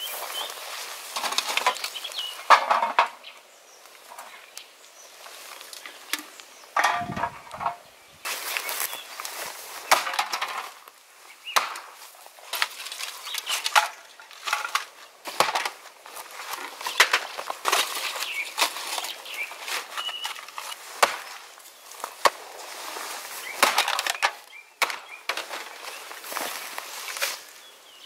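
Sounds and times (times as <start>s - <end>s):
empty cans clattering: 5.8s - 7.8s, 9.9s - 10.8s.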